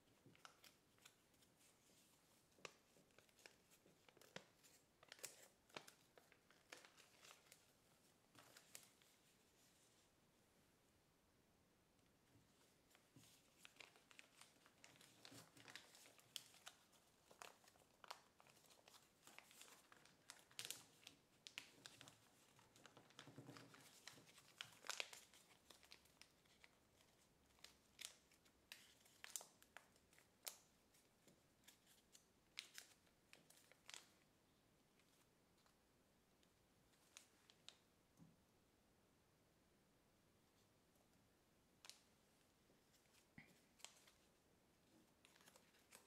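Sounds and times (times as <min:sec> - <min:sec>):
paper crinkling and crackling: 0:00.0 - 0:09.4, 0:12.9 - 0:34.2, 0:42.9 - 0:44.3, 0:45.1 - 0:46.0.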